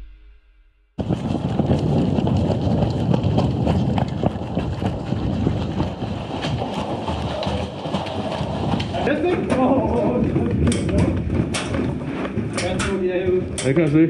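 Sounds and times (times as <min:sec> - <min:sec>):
footsteps running on gravel: 0:01.0 - 0:13.5
wind buffeting microphone: 0:01.0 - 0:13.9.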